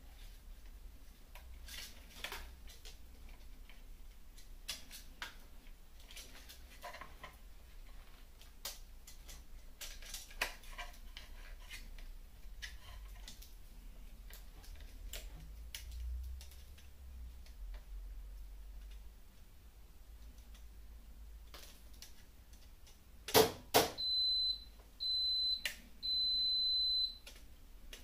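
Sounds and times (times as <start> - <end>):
faint low hum: 0.0 - 23.3, 24.0 - 28.0.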